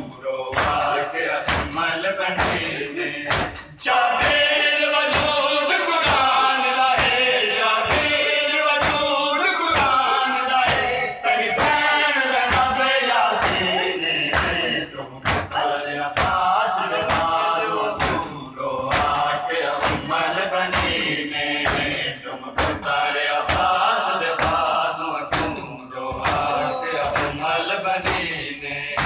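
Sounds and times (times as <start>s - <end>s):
men chanting in unison: 0.0s - 29.0s
hands slapping chests: 0.5s - 1.8s, 2.4s - 4.5s, 5.1s - 5.4s, 6.0s - 8.2s, 8.8s - 9.1s, 9.8s - 10.9s, 12.5s - 12.8s, 13.4s - 13.7s, 14.3s - 15.6s, 16.2s - 29.0s.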